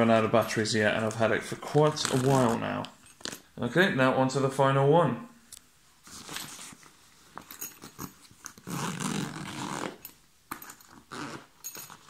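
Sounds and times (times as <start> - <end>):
nylon fabric rasping: 7.8 - 10.0, 10.9 - 12.0
zip being pulled open: 7.9 - 10.1, 10.9 - 12.0.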